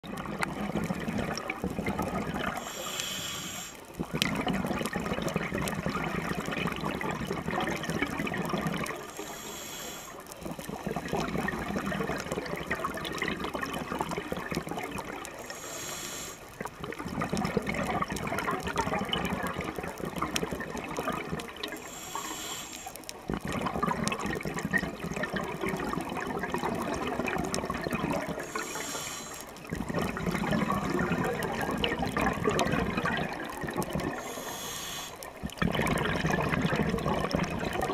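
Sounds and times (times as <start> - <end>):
exhaled bubbles rushing: 0.0 - 2.8, 3.9 - 9.1, 10.2 - 15.6, 16.5 - 22.3, 23.1 - 37.9
regulator inhalation hiss: 2.6 - 3.9, 9.0 - 10.4, 15.4 - 16.5, 21.7 - 23.2, 28.4 - 29.6, 34.1 - 35.4.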